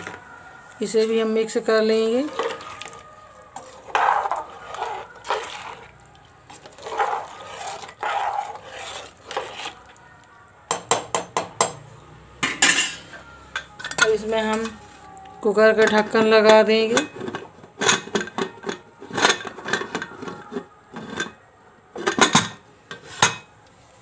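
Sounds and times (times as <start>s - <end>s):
ladle stirring watery mixture: 0.0s - 11.8s, 12.9s - 21.4s
ladle clinking against pot: 12.4s - 14.8s, 15.8s - 20.4s, 22.0s - 23.5s.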